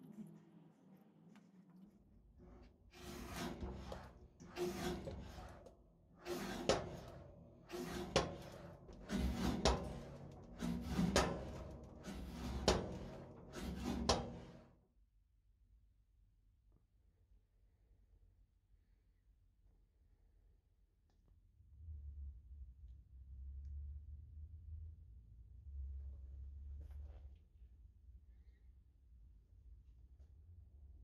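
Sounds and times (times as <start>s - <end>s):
mitre guillotine rasping strokes: 3.0s - 14.6s.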